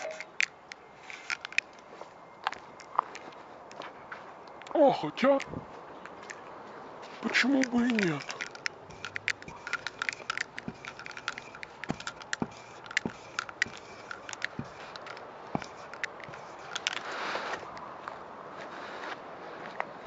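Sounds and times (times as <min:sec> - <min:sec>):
marker tip scraping on wall: 0:07.4 - 0:17.7.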